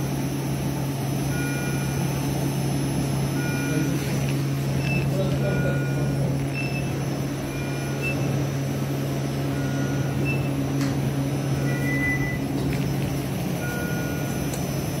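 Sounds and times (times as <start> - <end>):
low electrical hum: 0.0 - 15.0
electronic monitor beeps: 1.3 - 2.2, 3.3 - 8.6, 9.4 - 15.0.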